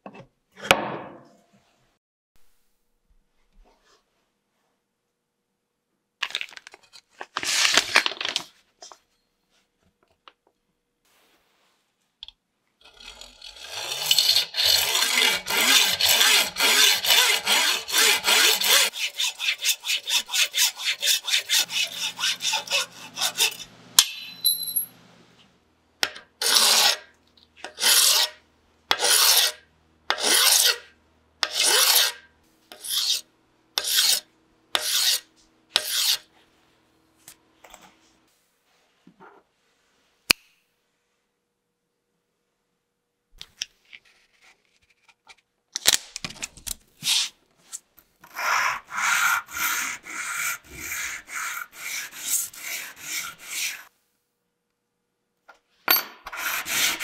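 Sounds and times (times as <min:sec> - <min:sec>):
hacksaw cutting metal: 0:12.8 - 0:24.4, 0:26.4 - 0:33.2, 0:33.8 - 0:34.2, 0:34.8 - 0:35.2, 0:35.8 - 0:36.2, 0:48.2 - 0:53.9, 0:56.2 - 0:57.0
file strokes on metal: 0:13.0 - 0:23.8, 0:26.4 - 0:27.1, 0:27.7 - 0:36.3, 0:48.2 - 0:53.9, 0:56.3 - 0:57.0.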